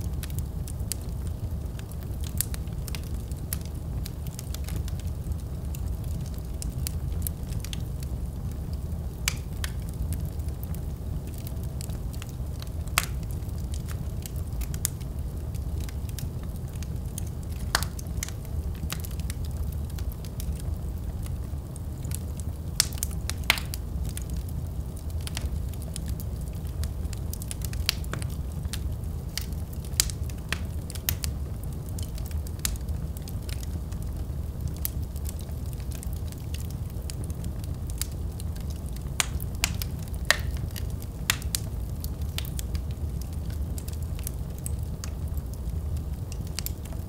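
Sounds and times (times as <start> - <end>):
fire crackling and popping: 0.0 - 47.0
fire rumbling: 0.0 - 47.0.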